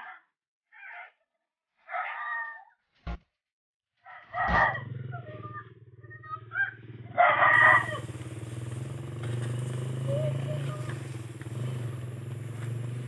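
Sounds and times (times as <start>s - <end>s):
rooster crowing: 4.0s - 4.9s, 6.6s - 8.1s
low engine hum: 4.6s - 13.0s.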